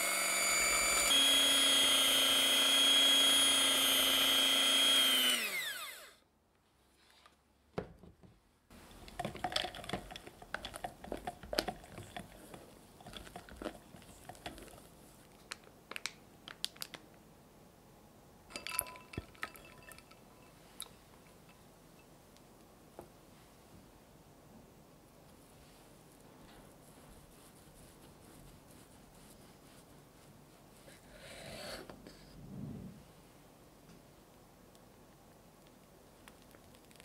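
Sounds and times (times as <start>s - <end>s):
electric hand mixer whining: 0.0s - 6.2s.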